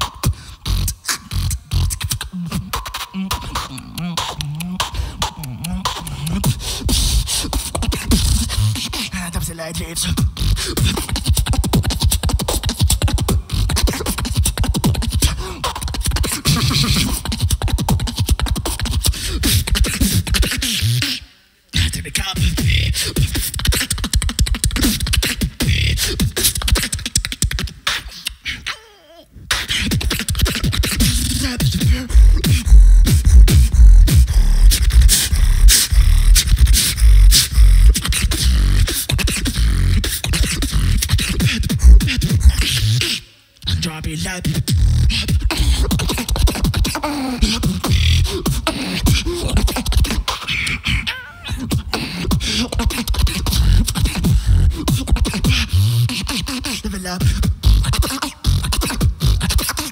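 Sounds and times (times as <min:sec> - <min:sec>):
beatboxing through microphone: 0:00.0 - 0:59.9
deep bass kicks: 0:32.1 - 0:37.9.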